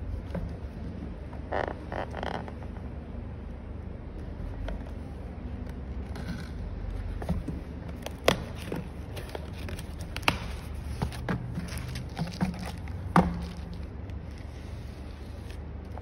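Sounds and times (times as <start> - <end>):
cardboard packaging crinkling: 7.9 - 16.0.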